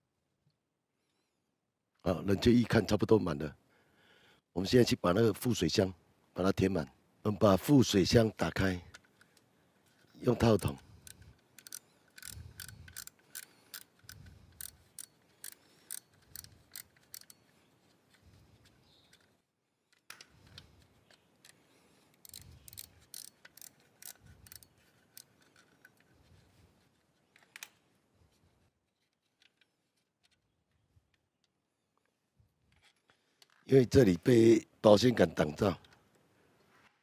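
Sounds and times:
ratchet wrench clicking: 10.6s - 17.4s, 22.2s - 25.7s.

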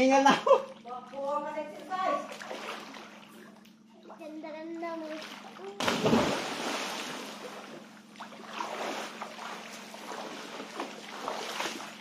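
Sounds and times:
faint low hum: 0.0s - 12.0s
seawater splashing: 4.8s - 12.0s.

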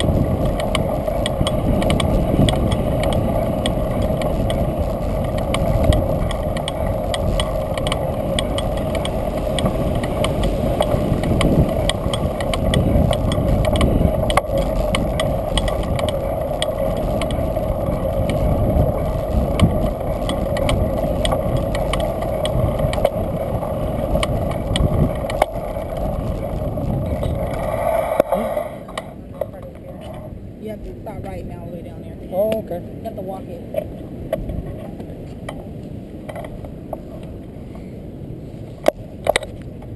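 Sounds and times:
bike rattling clicks: 0.0s - 29.1s
bicycle rumble on concrete: 0.0s - 31.4s.

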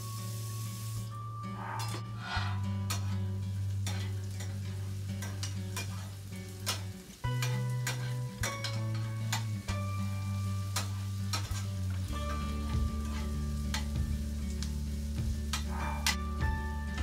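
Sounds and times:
onions sizzling in oil: 0.0s - 1.3s, 2.2s - 17.0s
background music low notes: 0.0s - 17.0s
metal spoon scraping pan: 1.7s - 4.6s, 5.2s - 9.5s.

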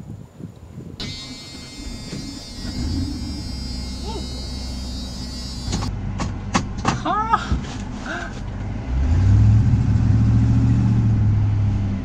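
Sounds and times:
thin high whine: 1.0s - 5.9s
truck engine idling: 1.0s - 7.3s.

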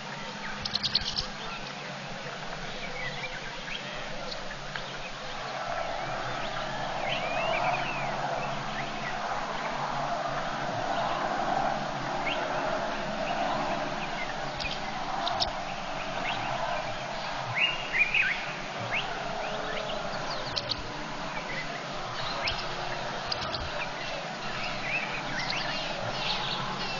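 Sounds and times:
background hiss of ambience: 0.0s - 26.9s
bird chirps: 0.4s - 1.8s, 13.2s - 26.9s.

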